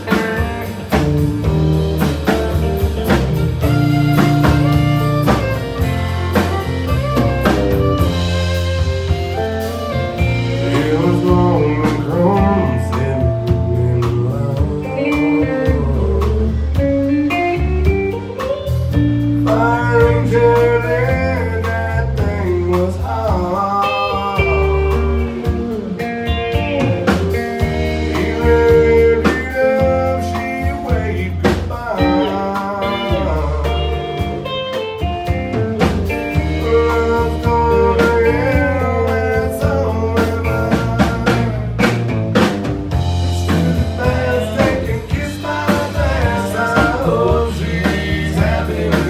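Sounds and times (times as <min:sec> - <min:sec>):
bass guitar: 0:00.0 - 0:49.0
drums: 0:00.0 - 0:49.0
lead guitar solo with bending notes: 0:03.4 - 0:12.8, 0:32.0 - 0:36.8.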